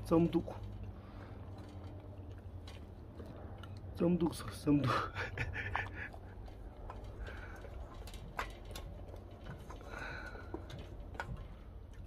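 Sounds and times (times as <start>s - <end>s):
puppy eating from metal bowl: 6.1s - 12.0s.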